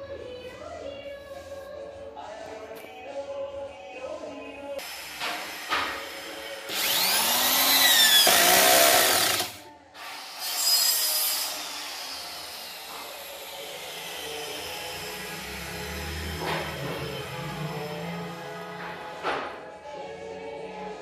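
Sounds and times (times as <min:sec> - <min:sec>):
cordless drill driving screw: 0:06.7 - 0:09.6.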